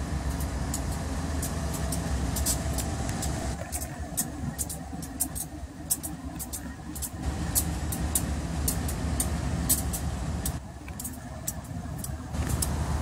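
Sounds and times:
diesel locomotives rumbling: 0:00.0 - 0:13.0
sharp high clicks and squeaks: 0:00.3 - 0:12.8.

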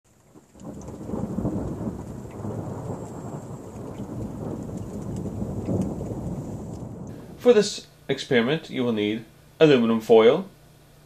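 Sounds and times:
rolling thunder: 0:00.1 - 0:07.7.

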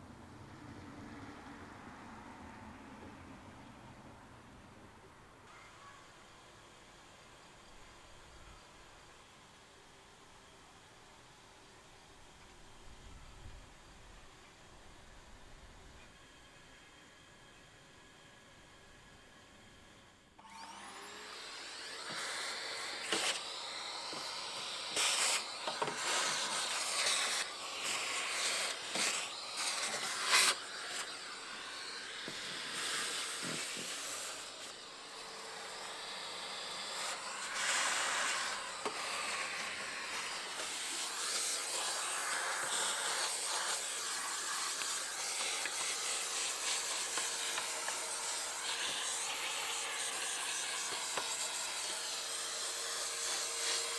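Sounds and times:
vacuum cleaner running: 0:15.4 - 0:53.9.

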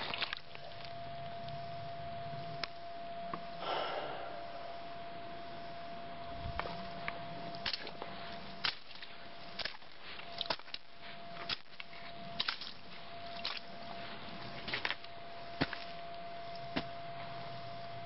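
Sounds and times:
faint steady hum: 0:00.0 - 0:18.0
footsteps crunching on gravel: 0:06.5 - 0:17.4.

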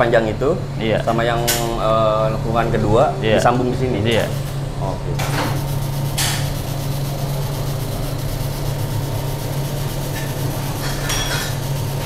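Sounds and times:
electrical hum: 0:00.0 - 0:12.0
welding arc hissing: 0:04.0 - 0:12.0.

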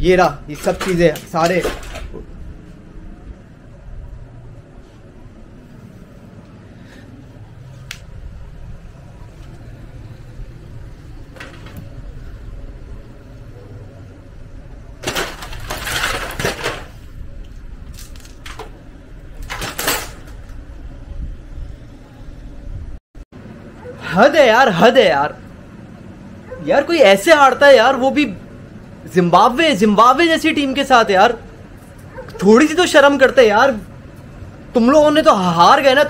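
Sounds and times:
glass sheets clattering and rattling: 0:00.5 - 0:02.2, 0:15.0 - 0:17.0, 0:19.4 - 0:20.5.

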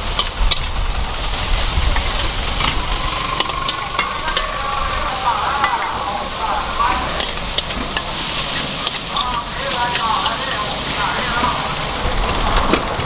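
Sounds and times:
food sizzling in a wok: 0:00.0 - 0:12.1
low rumble: 0:00.7 - 0:08.3
metal spatula scraping wok: 0:01.3 - 0:12.0.

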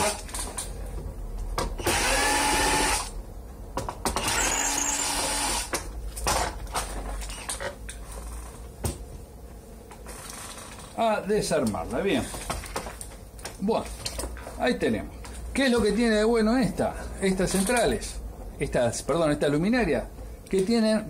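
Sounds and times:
cordless drill motor whine: 0:01.8 - 0:03.1, 0:04.2 - 0:05.7.

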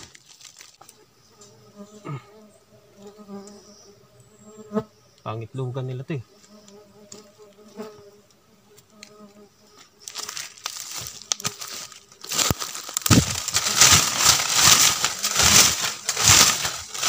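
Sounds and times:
faint bees buzzing: 0:00.8 - 0:17.0
crackling rustling on microphone: 0:09.1 - 0:17.0.

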